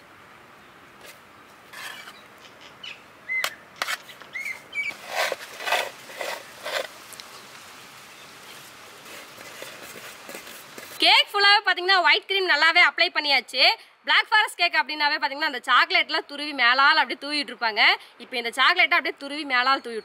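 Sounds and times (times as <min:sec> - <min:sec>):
utensils scraping and tapping: 0:01.0 - 0:02.8, 0:03.4 - 0:04.3, 0:04.9 - 0:07.0
bird chirps: 0:02.1 - 0:05.0.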